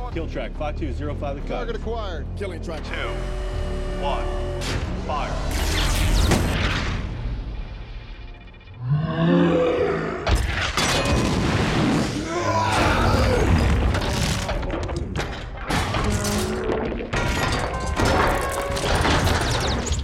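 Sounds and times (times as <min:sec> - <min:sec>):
crashing metal: 0:13.4 - 0:20.0.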